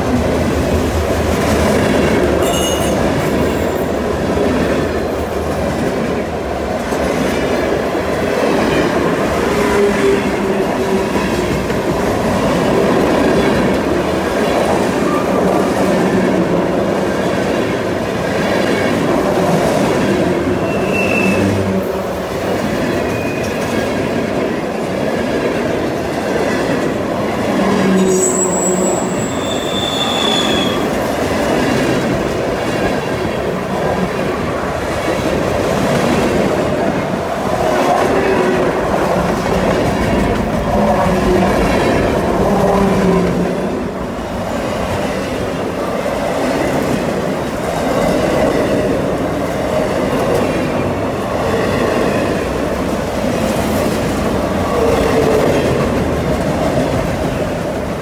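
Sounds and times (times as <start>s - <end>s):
train wheels rumbling on rail: 0.0s - 58.0s
high wheel squeals: 2.4s - 3.0s, 20.6s - 21.5s, 28.0s - 30.9s.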